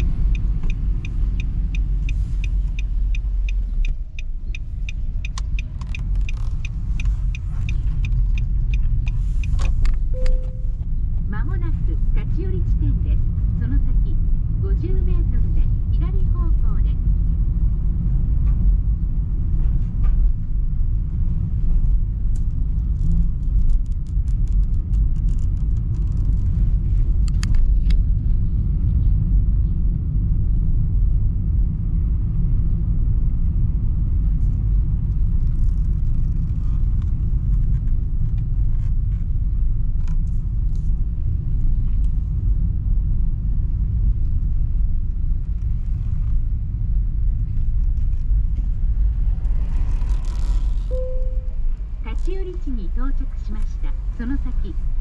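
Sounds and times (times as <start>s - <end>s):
faint light ticks: 0.0s - 10.4s
car cabin road rumble: 0.0s - 55.0s.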